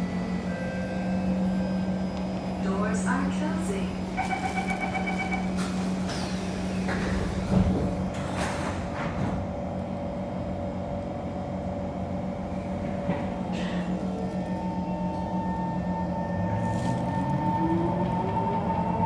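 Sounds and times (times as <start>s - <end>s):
train doors shutting with thud: 2.2s - 9.8s, 12.8s - 14.3s.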